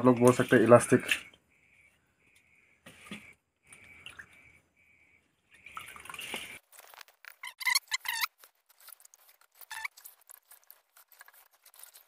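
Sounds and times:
wet trickle of water: 0:03.0 - 0:07.1
short squeaks: 0:07.3 - 0:08.4.

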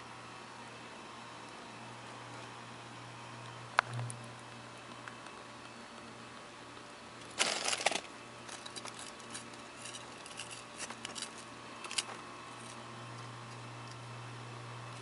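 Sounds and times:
steady low hum: 0:00.0 - 0:15.0
ice scraping and crunching: 0:07.3 - 0:08.1.

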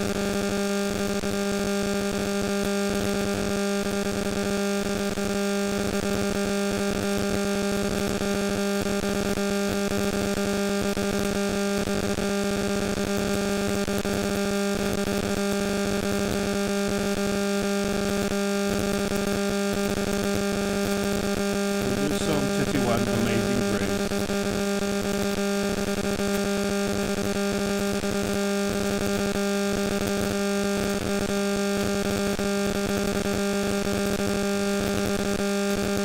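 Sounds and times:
wavering voice-like sound: 0:21.8 - 0:24.0.

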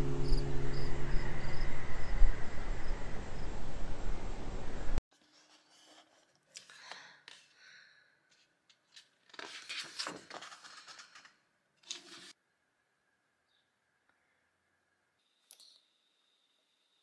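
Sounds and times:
book pages rustling: 0:05.2 - 0:12.4
person breathing: 0:06.6 - 0:08.5.

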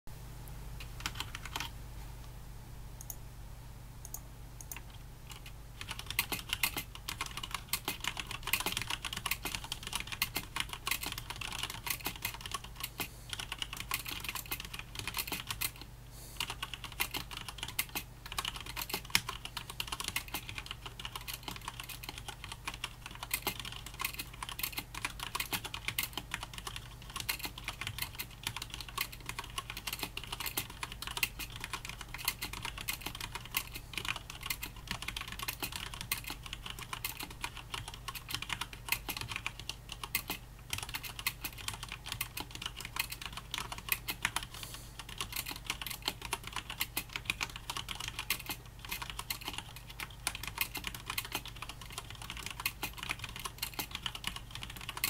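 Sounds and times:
fast typing on mechanical keyboard: 0:01.0 - 0:01.7, 0:04.7 - 0:55.0.

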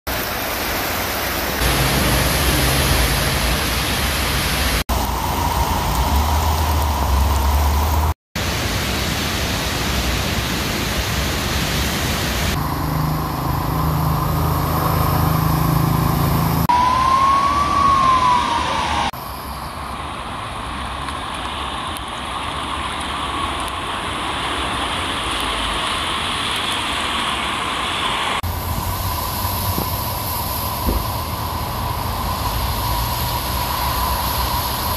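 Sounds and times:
running floodwater: 0:00.1 - 0:19.1, 0:20.0 - 0:34.9
heavy rain: 0:00.1 - 0:34.9
passing traffic: 0:00.2 - 0:34.9
siren wail: 0:01.6 - 0:08.1, 0:12.6 - 0:20.0.

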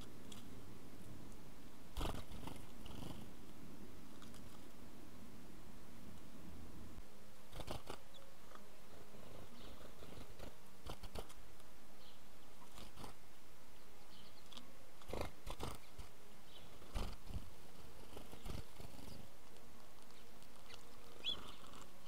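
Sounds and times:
background hiss: 0:00.0 - 0:22.0
sparrow wings fluttering: 0:02.0 - 0:03.2, 0:10.0 - 0:11.4.

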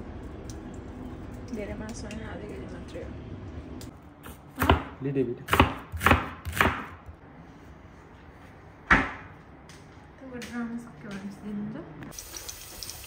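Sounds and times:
knife chopping onion on wooden board: 0:04.3 - 0:07.0.

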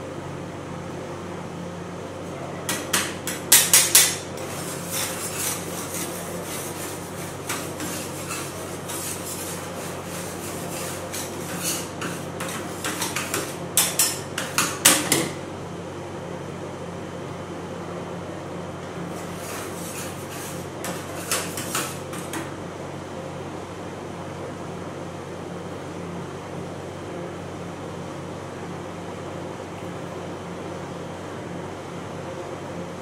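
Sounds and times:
metal spatulas clacking: 0:02.7 - 0:04.2
spatulas scraping steel plate: 0:02.8 - 0:14.8, 0:19.1 - 0:22.4.

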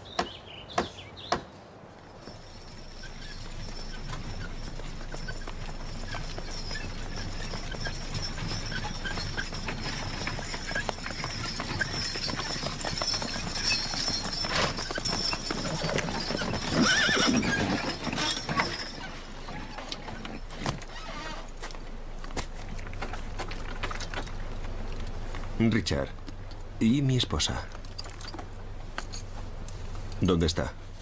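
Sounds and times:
hooves clip-clopping on dirt road: 0:00.0 - 0:31.0
horse whinnying: 0:05.2 - 0:21.6.

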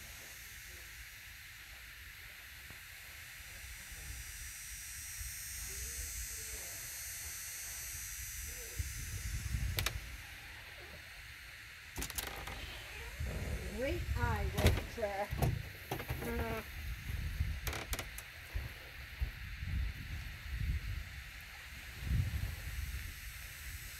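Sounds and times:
wind rumbling on microphone: 0:08.4 - 0:11.1, 0:12.0 - 0:23.9.

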